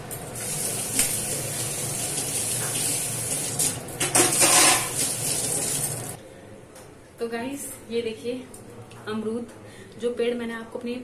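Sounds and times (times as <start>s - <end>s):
water running into sink: 0.0s - 6.2s.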